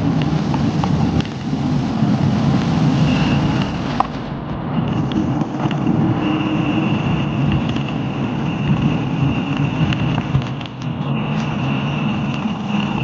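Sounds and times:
tyres rumbling over rough road: 0.0 - 13.0
wind buffeting microphone: 0.0 - 13.0
faint steady high tone: 3.0 - 4.1.

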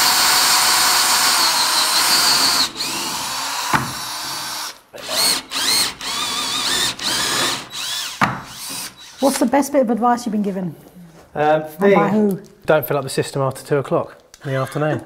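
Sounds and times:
power drill boring into tile: 0.0 - 9.4.

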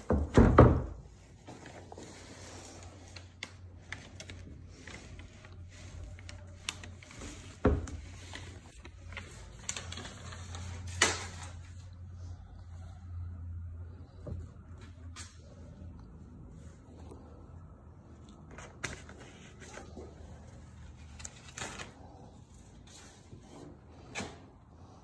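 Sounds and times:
paper rustling: 1.1 - 12.2, 18.1 - 24.4.

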